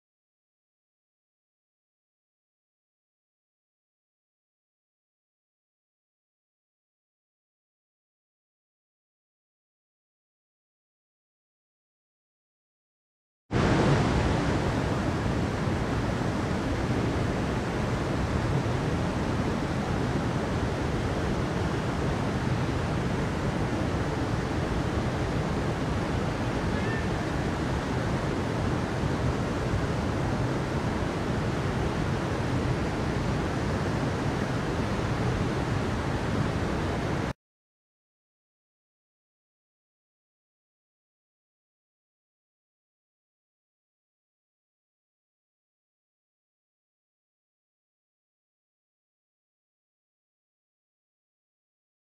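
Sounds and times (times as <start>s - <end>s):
stream flowing over rocks: 13.6s - 37.2s.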